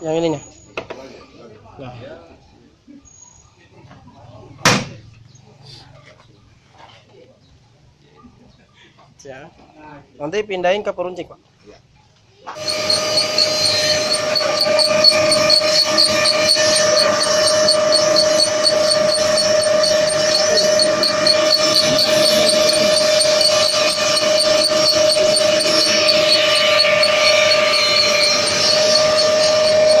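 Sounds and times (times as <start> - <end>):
machine motor whine: 12.5 - 30.0
fast regular ticking: 12.6 - 30.0.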